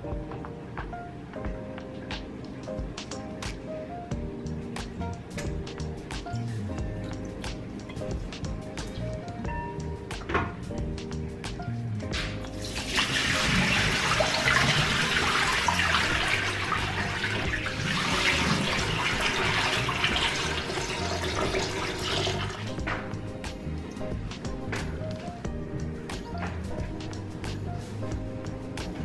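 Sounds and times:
background music: 0:00.0 - 0:29.0
tap water running into sink: 0:12.6 - 0:23.1.

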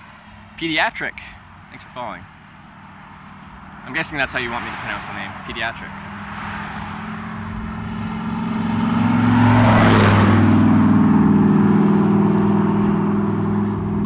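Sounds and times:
traffic: 0:00.0 - 0:14.0
vehicle driving past: 0:03.3 - 0:14.0.

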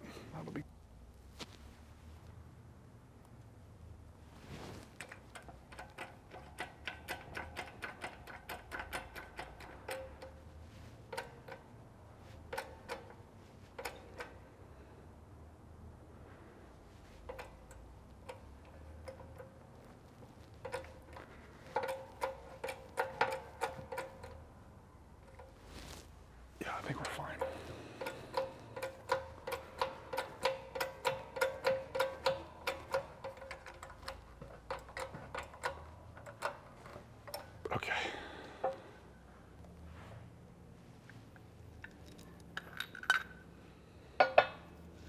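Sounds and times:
press metallic ticks with ring: 0:27.4 - 0:36.6.

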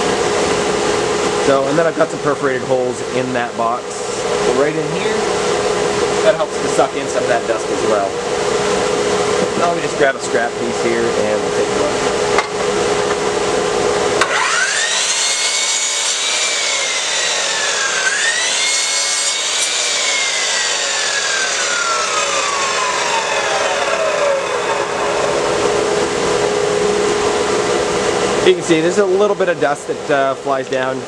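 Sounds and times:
dust collector humming: 0:00.0 - 0:31.0
miter saw whining: 0:14.2 - 0:28.6.

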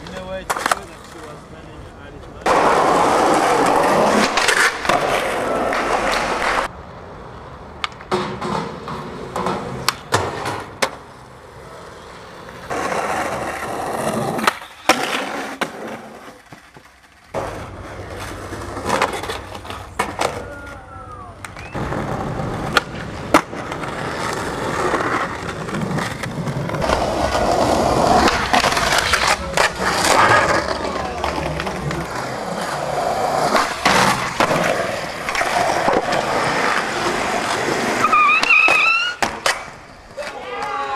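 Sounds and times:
skateboard wheels rolling: 0:00.0 - 0:40.9
skateboard grinding on ledges: 0:02.2 - 0:06.7, 0:07.8 - 0:20.8, 0:21.4 - 0:40.4
skateboard pops and landings: 0:12.7 - 0:17.6, 0:21.4 - 0:32.3, 0:33.4 - 0:40.8.

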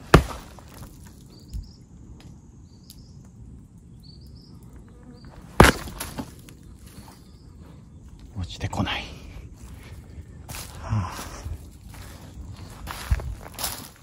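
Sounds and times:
knocks on tree trunk: 0:00.0 - 0:01.0, 0:05.5 - 0:06.4
tree trunk kicked: 0:00.0 - 0:01.3, 0:05.4 - 0:07.1.

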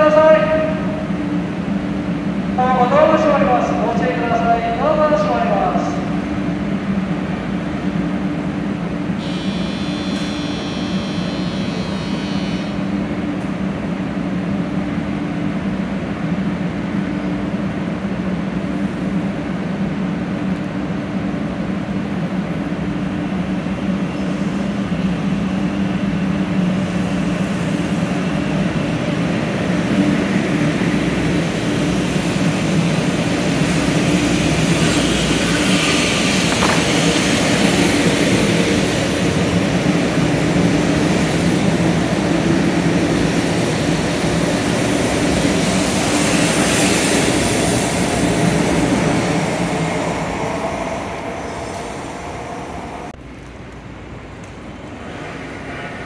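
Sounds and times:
train humming: 0:00.0 - 0:56.0
brief high ringing: 0:09.2 - 0:12.8.

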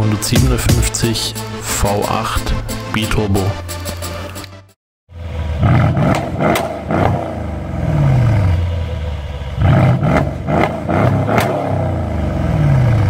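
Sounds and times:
engine throttle blips: 0:05.1 - 0:13.0
engine idling: 0:07.7 - 0:10.0.

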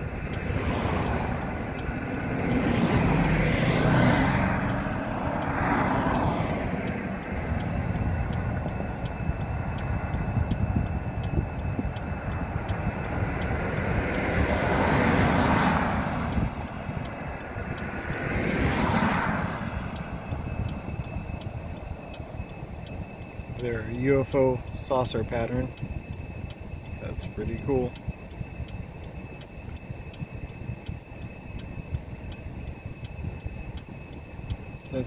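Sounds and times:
cars passing: 0:00.0 - 0:26.1, 0:26.8 - 0:28.7.

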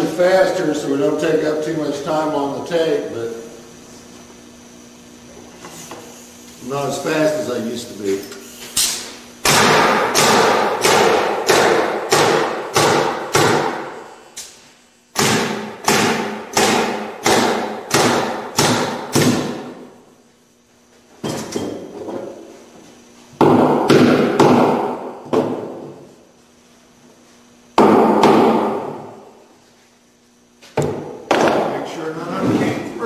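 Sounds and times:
nail gun firing into wood: 0:08.8 - 0:13.9, 0:15.1 - 0:19.6.

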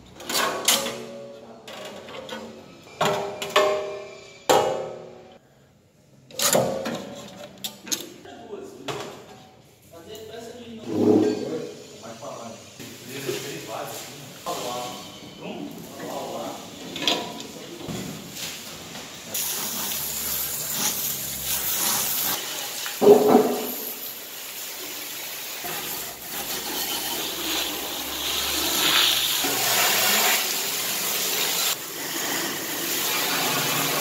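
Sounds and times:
water spraying on metal: 0:19.3 - 0:34.0.

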